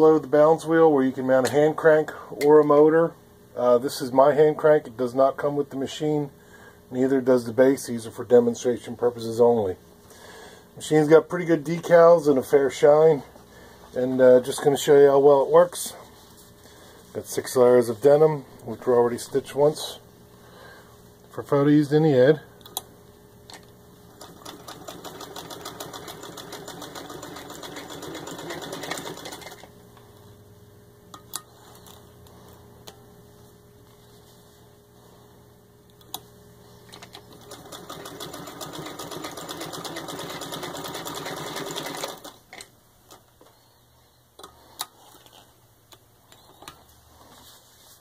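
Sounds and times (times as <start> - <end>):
sewing machine stitching: 24.1 - 29.7, 37.0 - 42.4.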